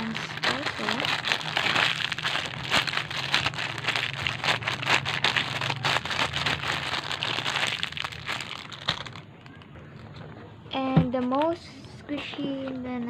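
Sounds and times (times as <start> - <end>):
paper and plastic crinkling: 0.0 - 10.3.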